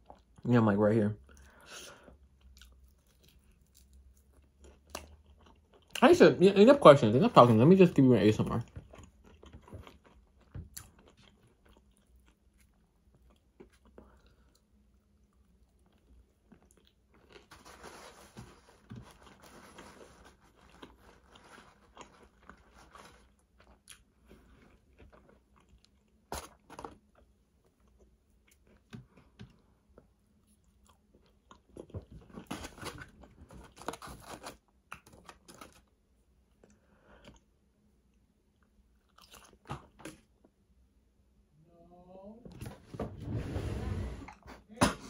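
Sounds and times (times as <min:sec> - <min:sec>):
person chewing crunchy food: 0:01.3 - 0:06.0, 0:08.4 - 0:37.6, 0:38.5 - 0:40.6.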